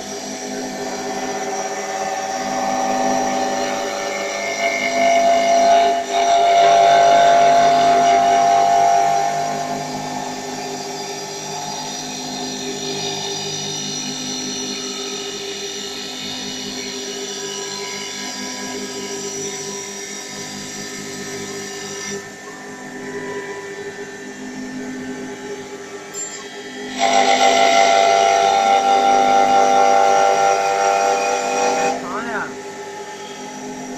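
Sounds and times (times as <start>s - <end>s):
wood lathe whining: 0.0s - 16.1s, 26.2s - 33.9s.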